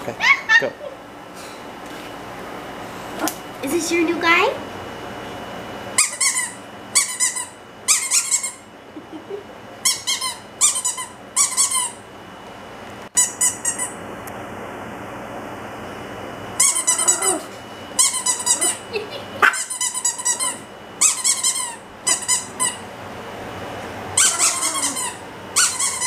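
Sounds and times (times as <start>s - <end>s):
squeaky dog toy squeaking: 6.0s - 8.6s, 9.8s - 12.0s, 16.6s - 17.4s, 18.0s - 18.8s, 19.5s - 22.8s, 24.2s - 26.0s.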